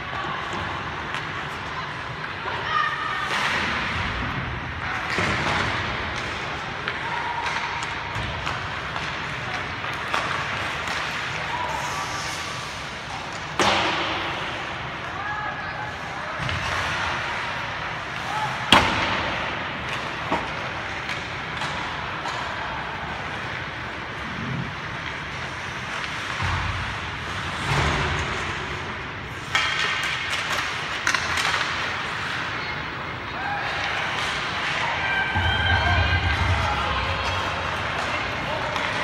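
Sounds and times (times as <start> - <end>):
skate blades scraping ice: 8.5 - 13.6
puck and sticks knocking boards: 13.2 - 14.7, 18.2 - 22.6, 29.4 - 32.3.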